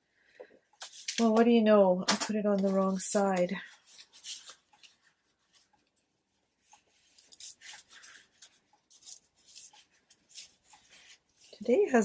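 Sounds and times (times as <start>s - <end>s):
tissue rubbing over paper: 6.5s - 12.0s.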